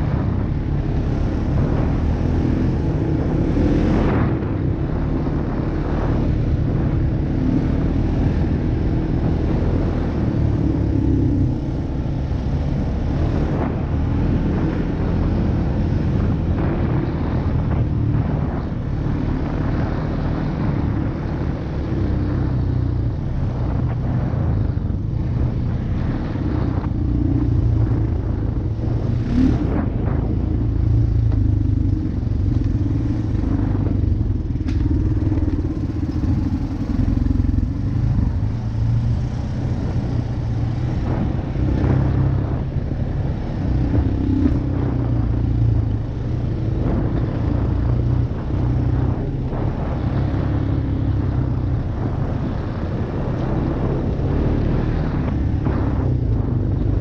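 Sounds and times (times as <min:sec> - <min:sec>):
atv engine running: 0:00.0 - 0:57.0
knocks and clatters of vehicle: 0:31.3 - 0:36.8.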